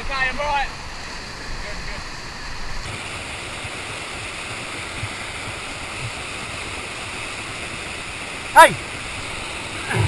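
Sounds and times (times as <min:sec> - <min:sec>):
river rapids rushing: 0:02.8 - 0:10.0.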